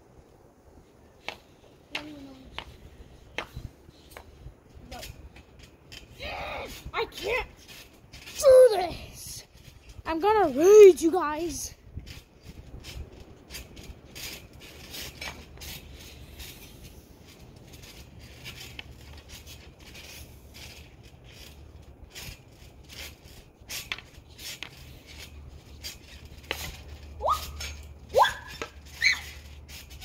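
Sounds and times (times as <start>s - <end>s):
short rising squeaks: 22.2s - 30.0s.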